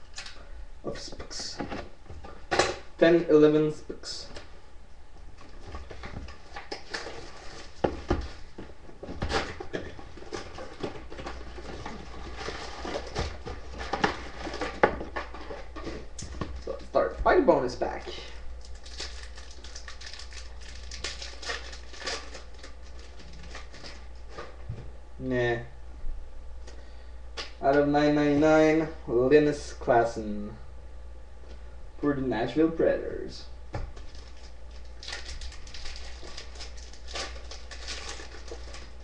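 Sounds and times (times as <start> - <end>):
foil wrapper crinkling: 18.6 - 24.3, 34.0 - 39.0.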